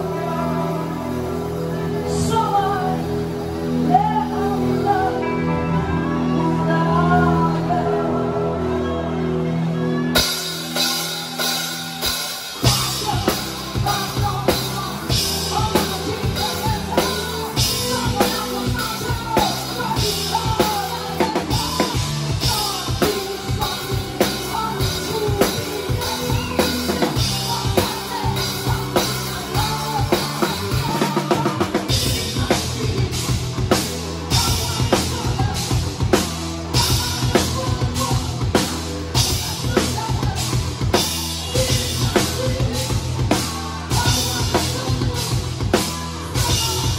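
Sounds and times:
rock band playing: 0.0 - 46.9
drum kit playing: 10.2 - 46.9.

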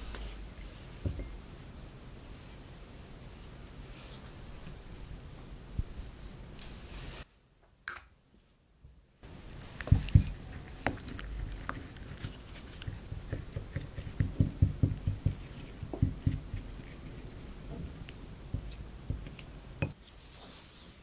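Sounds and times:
spoon stirring thick sauce: 9.3 - 20.0
spoon knocking ceramic bowl: 13.0 - 16.6.

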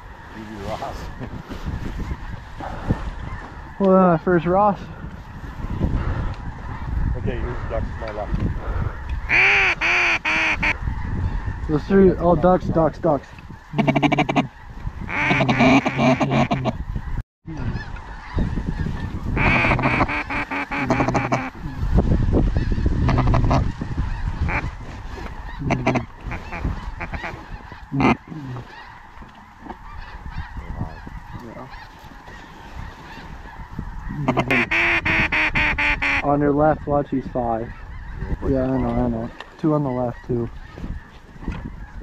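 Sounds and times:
duck call quacks: 9.3 - 10.8, 13.7 - 16.8, 19.4 - 21.8, 22.6 - 24.7, 25.5 - 29.0, 34.0 - 36.3.

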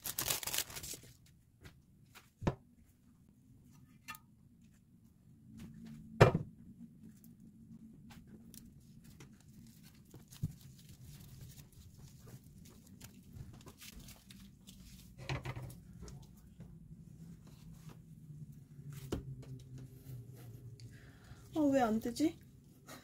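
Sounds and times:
seaweed sheet rustling: 0.0 - 1.1.

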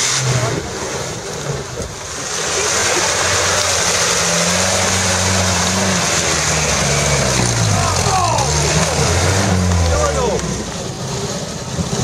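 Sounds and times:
vehicle engine running under load: 0.0 - 12.0
loud steady rushing noise: 1.9 - 12.0.

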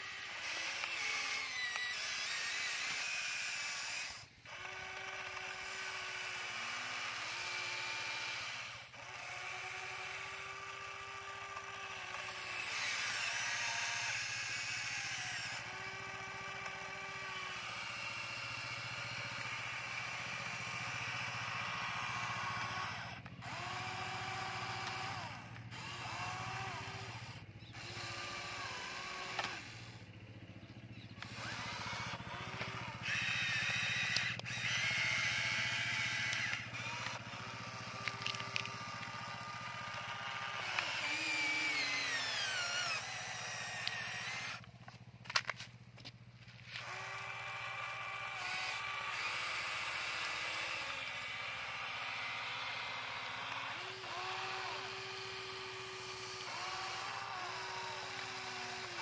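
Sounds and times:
toy excavator motors whining: 0.0 - 59.0.

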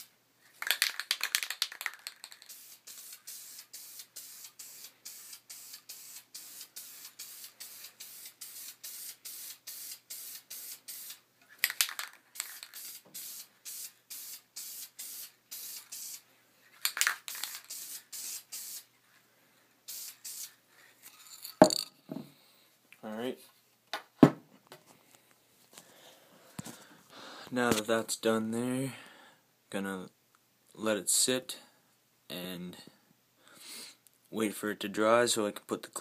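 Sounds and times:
spray paint can hissing: 0.6 - 16.2, 16.9 - 18.9, 19.8 - 20.6.

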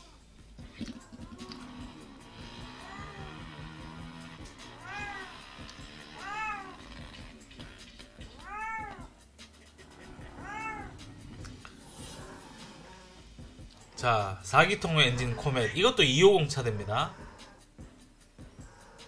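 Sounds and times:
cat meowing: 2.6 - 3.8, 4.7 - 7.2, 8.2 - 9.2, 10.1 - 11.5.

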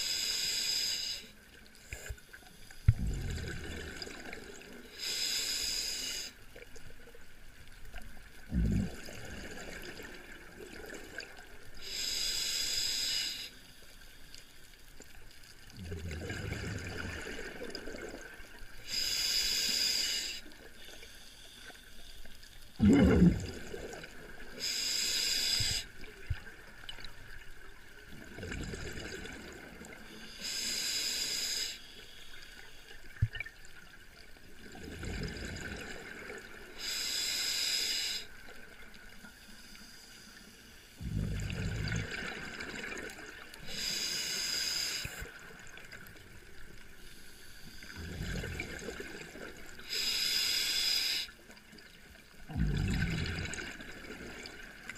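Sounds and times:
regulator hiss on inhale: 0.0 - 3.0, 4.8 - 6.6, 11.7 - 15.4, 18.8 - 22.6, 24.5 - 26.5, 30.0 - 33.2, 36.6 - 41.3, 43.5 - 46.2, 46.9 - 48.8, 49.4 - 51.6
rumble of exhaled bubbles: 2.8 - 4.7, 8.4 - 11.3, 15.7 - 18.3, 22.8 - 24.5, 28.1 - 29.9, 34.6 - 36.4, 41.0 - 43.3, 47.9 - 49.6, 52.4 - 54.9.

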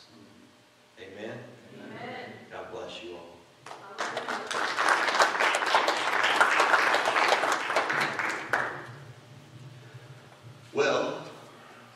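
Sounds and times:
crowd applauding: 3.7 - 9.1.

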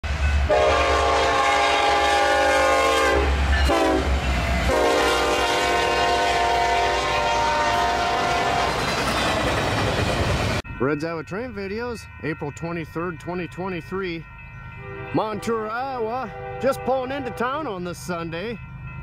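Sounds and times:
train rumbling past: 0.0 - 19.0
locomotive air horn blasts: 0.5 - 8.8, 14.8 - 17.6.

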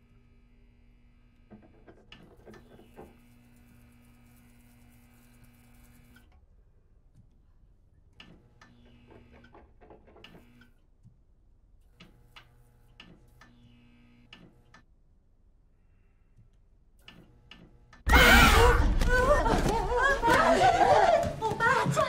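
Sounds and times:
fluorescent light buzzing: 11.8 - 14.9.

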